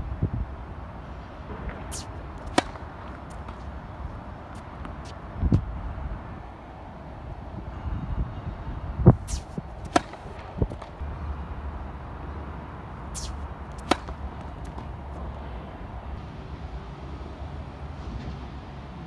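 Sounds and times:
tennis ball knocks: 1.8s - 3.7s, 9.3s - 10.9s, 13.2s - 15.0s.

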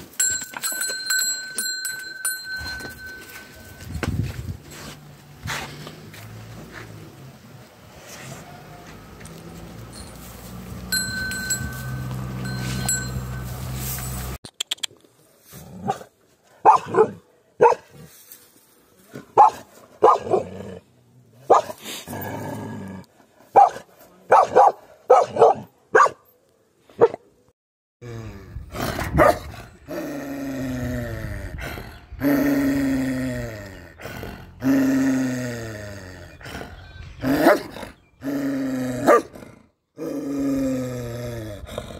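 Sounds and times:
puppy barking: 16.6s - 17.9s, 19.4s - 20.4s, 23.6s - 26.2s, 39.1s - 39.3s
deep growling call: 29.9s - 41.9s.

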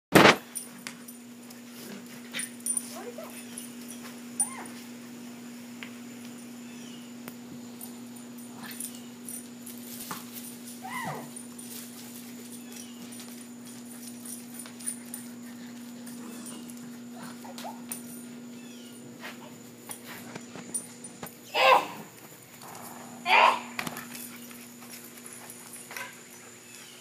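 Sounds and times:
steady low hum: 0.2s - 27.0s
dog whining and yipping: 4.4s - 4.8s, 10.8s - 11.4s, 15.8s - 19.5s.

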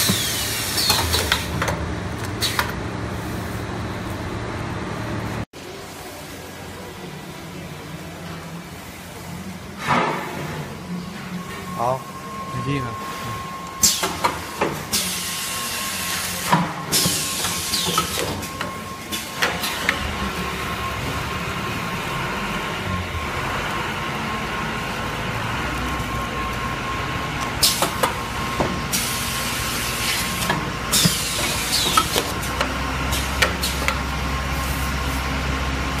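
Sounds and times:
pneumatic air hisses: 0.0s - 1.3s, 13.8s - 14.3s, 14.9s - 18.2s, 28.9s - 32.2s
packing machine humming: 0.0s - 5.4s, 10.6s - 36.0s.

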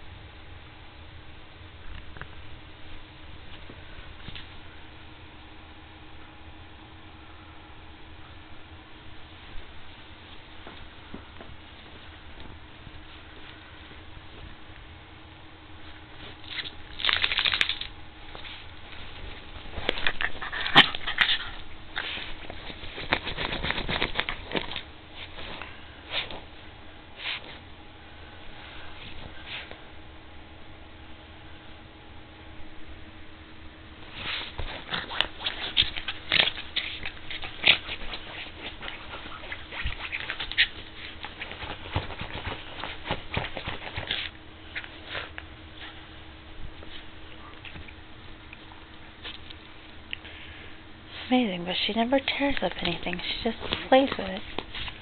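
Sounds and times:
dog scratching and rustling fabric: 18.2s - 26.6s, 27.2s - 27.7s, 34.0s - 46.1s, 51.1s - 55.0s.

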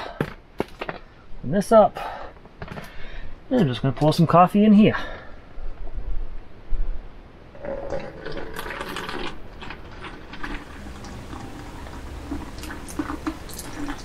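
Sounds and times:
coffee pouring into plastic bottle: 7.6s - 14.0s.

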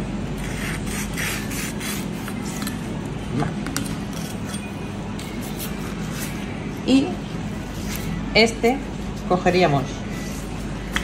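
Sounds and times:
steady low hum: 0.0s - 11.0s
knife scraping cutting board: 4.0s - 6.5s.

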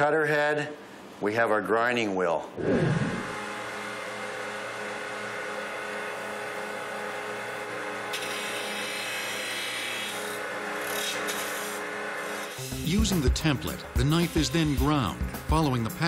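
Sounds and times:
motor hum: 2.6s - 11.1s
grinding wheel grinding steel: 7.6s - 13.2s.

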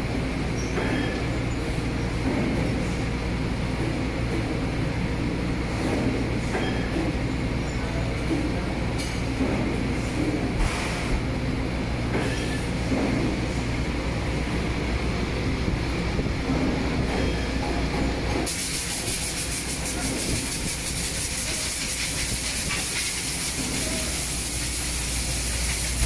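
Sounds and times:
low mechanical hum: 0.0s - 26.0s
compressed air hiss from spray gun: 18.4s - 26.0s.

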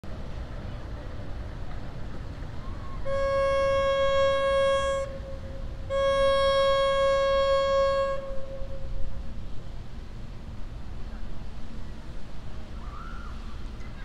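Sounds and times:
boat horn blasts: 2.9s - 9.5s.

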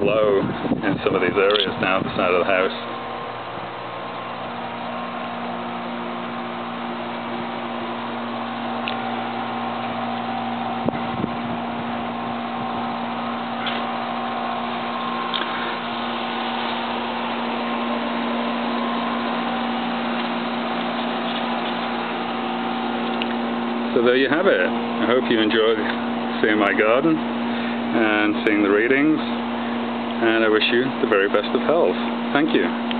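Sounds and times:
steady mechanical hum: 0.0s - 32.9s.

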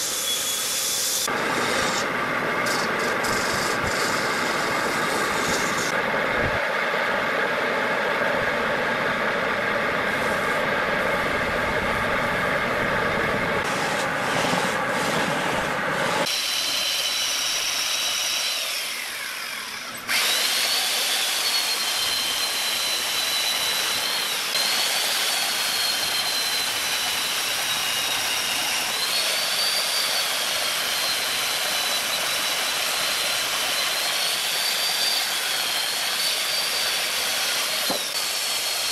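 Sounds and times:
chainsaw cutting wood: 0.0s - 6.0s, 16.2s - 38.9s.

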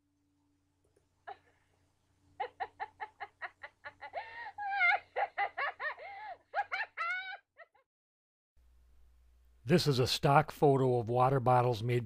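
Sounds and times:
cartoonish cackling laughter: 2.4s - 7.9s.

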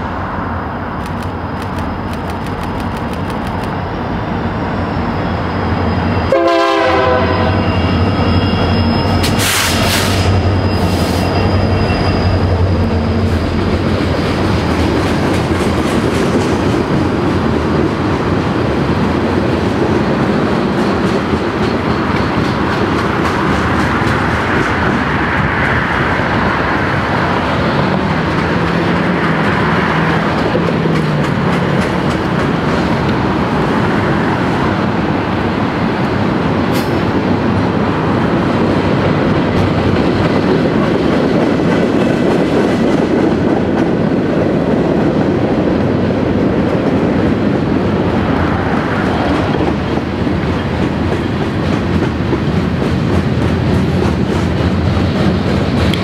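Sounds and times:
train wheels clickety-clack on rail: 0.9s - 4.0s, 6.0s - 56.0s
sharp click: 1.0s - 3.8s.

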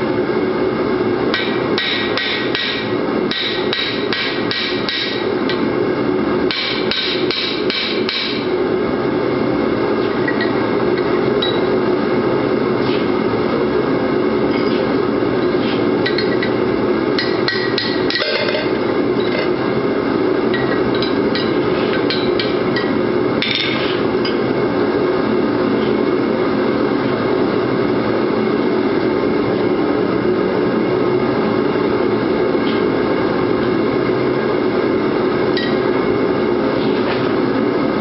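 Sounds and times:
hammer blows ringing on metal: 1.4s - 5.2s, 6.5s - 8.4s.

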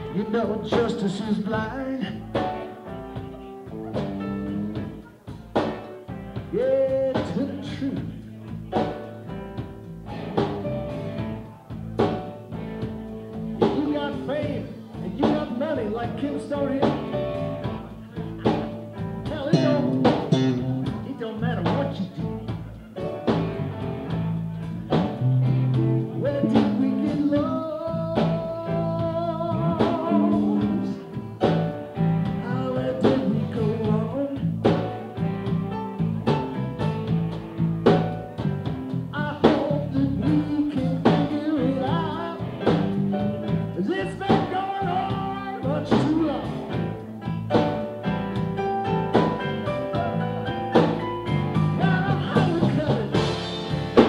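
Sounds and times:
bass: 0.0s - 54.0s
keyboards: 0.0s - 54.0s
lead guitar line with vibrato: 0.0s - 54.0s
drum beat: 28.2s - 54.0s.

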